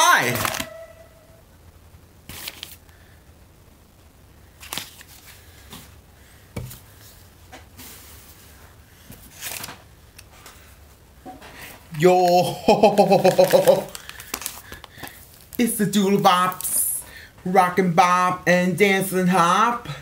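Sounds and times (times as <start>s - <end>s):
paper mailer crinkling and tearing: 2.3s - 2.8s, 4.6s - 5.4s, 9.3s - 9.8s, 13.1s - 16.9s.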